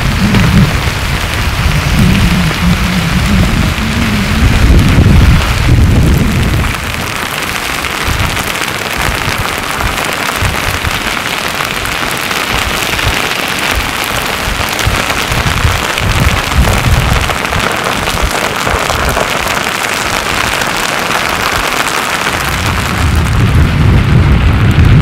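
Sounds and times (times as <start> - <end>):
low rumbling: 0.0 - 8.4, 22.5 - 25.0
lava slabs scraping and crackling: 0.0 - 25.0.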